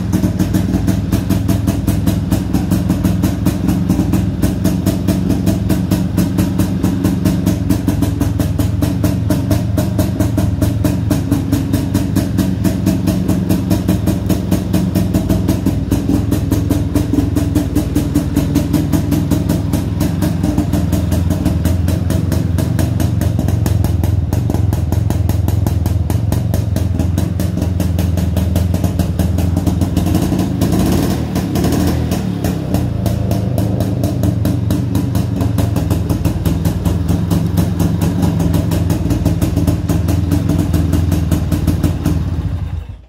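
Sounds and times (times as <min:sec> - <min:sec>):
motorcycle engine idling: 0:00.0 - 0:43.0.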